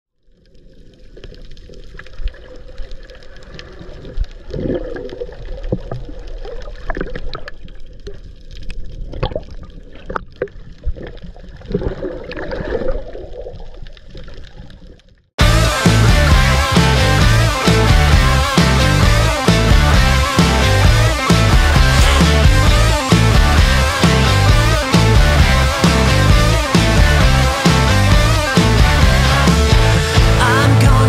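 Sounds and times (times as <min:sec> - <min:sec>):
muffled underwater wash: 0:00.2 - 0:15.2
water bubbling and gurgling: 0:00.2 - 0:15.3.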